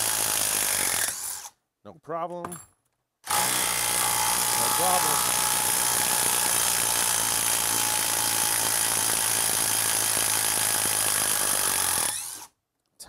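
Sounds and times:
impact driver hammering: 0:03.3 - 0:12.1.

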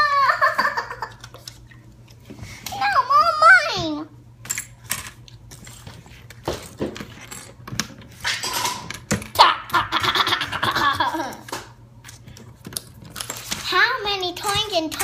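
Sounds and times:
child laughing: 0:00.0 - 0:01.3, 0:09.4 - 0:11.6.

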